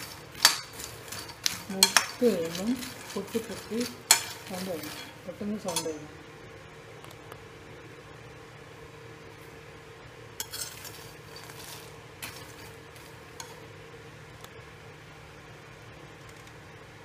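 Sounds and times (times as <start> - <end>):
peanuts rattling in pan: 0.0 - 6.1, 10.4 - 13.7
spoon scraping and clinking pan: 0.0 - 6.1, 10.4 - 13.6
low steady hum: 0.0 - 17.0.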